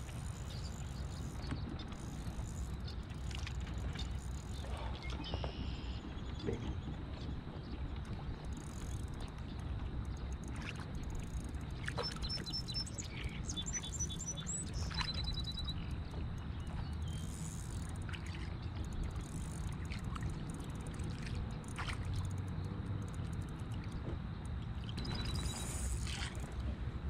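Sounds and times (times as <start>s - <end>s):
water against a kayak: 0.0s - 27.0s
faint ticks: 8.0s - 26.7s
bird chirping: 12.0s - 15.9s.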